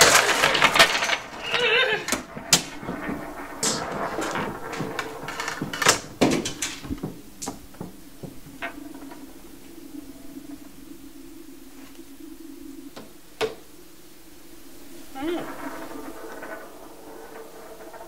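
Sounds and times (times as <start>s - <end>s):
marbles clicking on board and table: 0.0s - 8.8s, 15.4s - 18.0s.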